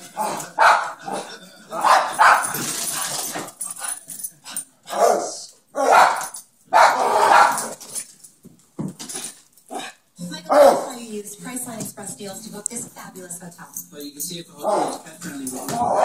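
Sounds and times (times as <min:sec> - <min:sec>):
dog barking: 0:00.2 - 0:02.6, 0:04.9 - 0:07.8, 0:10.5 - 0:11.0, 0:14.6 - 0:15.0, 0:15.6 - 0:16.0.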